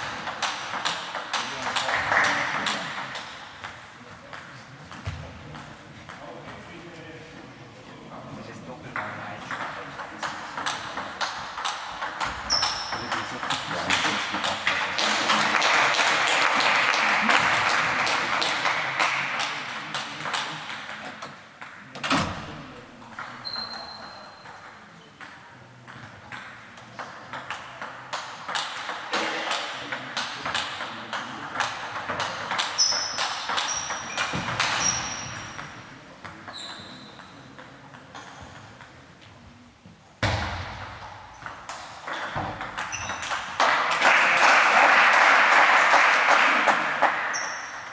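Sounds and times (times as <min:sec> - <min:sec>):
table tennis balls clicking: 0:00.0 - 0:05.0, 0:09.0 - 0:15.0, 0:24.4 - 0:39.0, 0:40.8 - 0:44.0
short high squeaks: 0:12.4 - 0:13.0, 0:23.4 - 0:24.4, 0:32.8 - 0:35.4, 0:42.9 - 0:43.4.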